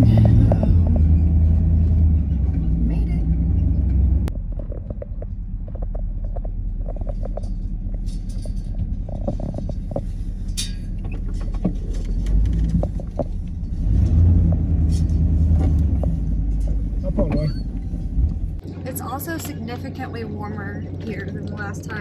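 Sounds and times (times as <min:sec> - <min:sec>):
vehicle engine rumbling: 0:00.0 - 0:22.0
clicks and rattles: 0:02.2 - 0:18.4.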